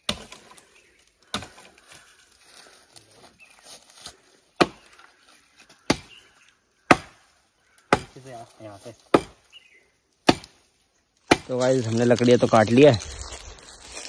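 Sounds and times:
axe chopping log: 0:00.0 - 0:00.4, 0:04.6 - 0:04.8, 0:05.9 - 0:06.1, 0:06.9 - 0:07.2, 0:07.9 - 0:08.2, 0:09.0 - 0:09.4, 0:10.2 - 0:10.6, 0:11.2 - 0:11.6.

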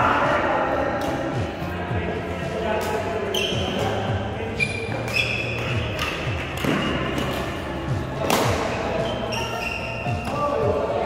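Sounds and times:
shoes squeaking on court floor: 0:02.8 - 0:10.8
racket hitting shuttlecock: 0:04.7 - 0:07.6, 0:08.2 - 0:08.8.

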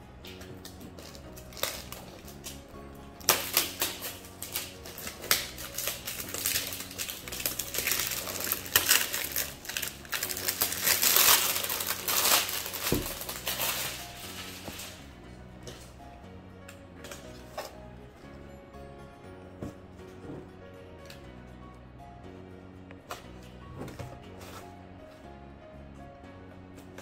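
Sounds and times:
background music: 0:00.0 - 0:27.0
plastic film crinkling: 0:00.2 - 0:15.1.

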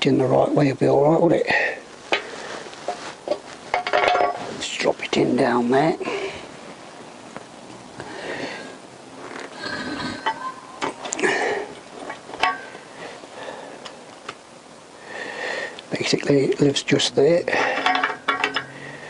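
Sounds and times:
soft handling noise: 0:01.9 - 0:08.1
metal casings clicking and knocking: 0:03.8 - 0:04.4, 0:17.7 - 0:18.8.

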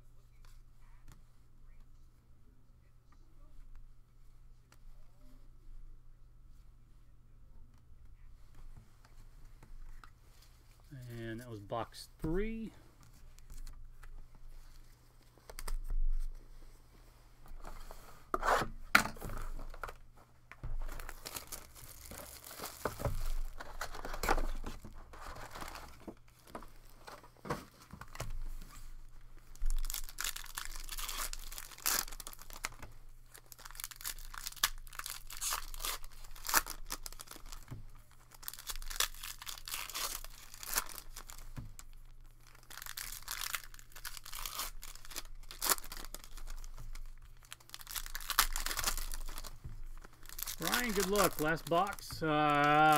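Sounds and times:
foil wrappers crinkling: 0:20.8 - 0:28.3, 0:29.4 - 0:52.9
cards being handled: 0:42.5 - 0:52.9.

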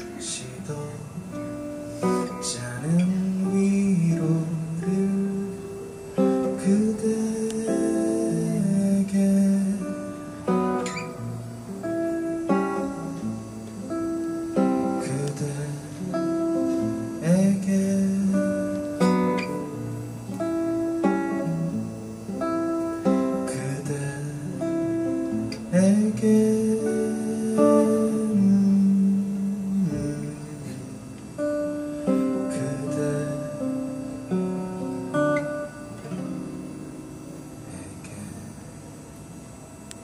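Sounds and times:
man singing: 0:00.0 - 0:11.0, 0:14.6 - 0:19.8, 0:23.1 - 0:31.2, 0:32.1 - 0:34.0, 0:37.6 - 0:38.6
acoustic guitar strumming: 0:00.0 - 0:39.4.

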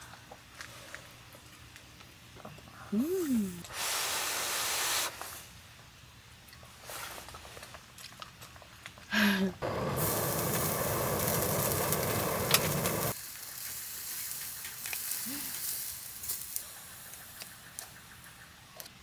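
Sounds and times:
gas burner hiss: 0:03.6 - 0:05.5, 0:09.2 - 0:18.0
meat sizzling on a grill: 0:09.6 - 0:17.5.

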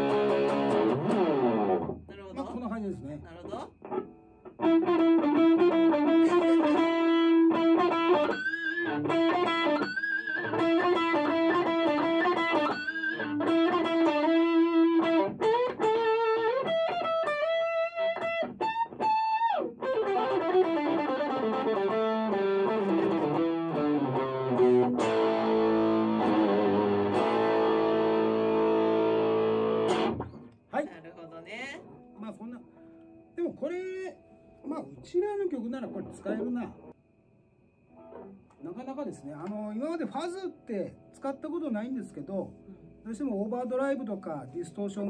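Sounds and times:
fuzz electric guitar lead: 0:00.0 - 0:02.1, 0:03.7 - 0:30.5.

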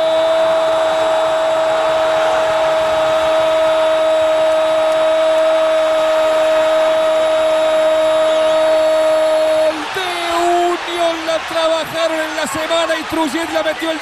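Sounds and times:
stadium crowd noise: 0:00.0 - 0:14.0
commentator shouting: 0:08.6 - 0:14.0.

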